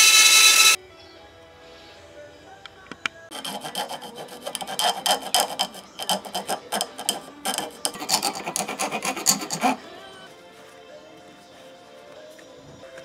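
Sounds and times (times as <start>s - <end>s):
file rasping on metal: 0.0s - 0.8s, 3.3s - 10.0s.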